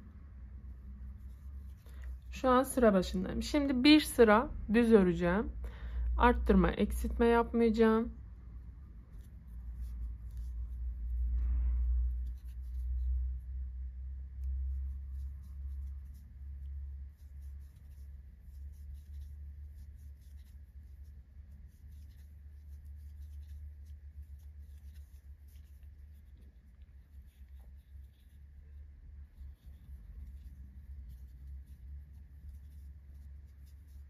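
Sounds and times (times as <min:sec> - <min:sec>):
low steady rumble: 0:00.0 - 0:34.0
crochet hook scraping yarn: 0:00.8 - 0:02.5, 0:08.7 - 0:34.0.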